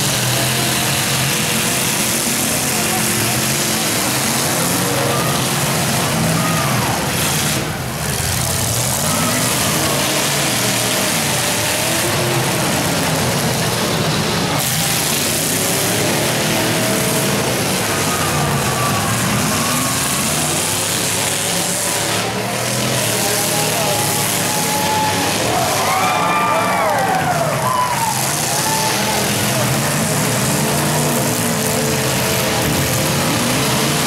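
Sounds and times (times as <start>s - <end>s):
car engines revving: 0.0s - 34.0s.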